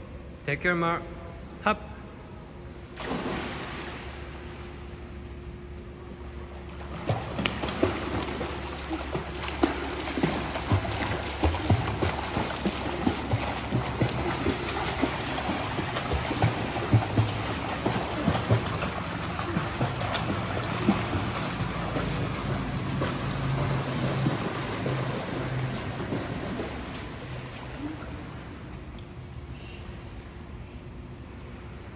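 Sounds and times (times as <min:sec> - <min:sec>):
swimmer splashing in pool: 0:03.0 - 0:04.4, 0:06.8 - 0:28.5.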